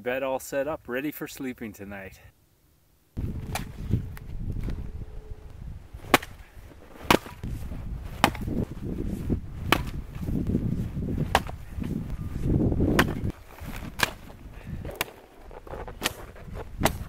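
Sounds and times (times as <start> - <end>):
axe chopping wood: 3.4 - 3.7, 6.0 - 8.7, 9.6 - 10.0, 11.2 - 11.7, 12.8 - 17.0.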